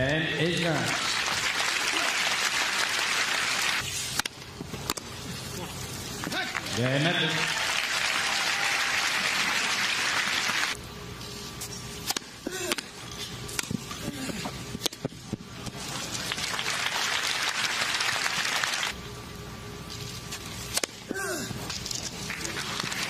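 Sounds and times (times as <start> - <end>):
crowd applauding: 0.8 - 3.8, 6.8 - 10.8, 16.1 - 18.9.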